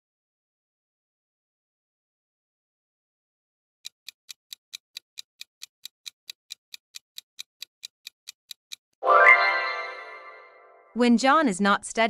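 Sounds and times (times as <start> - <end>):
clock ticking quickly: 3.8 - 9.0.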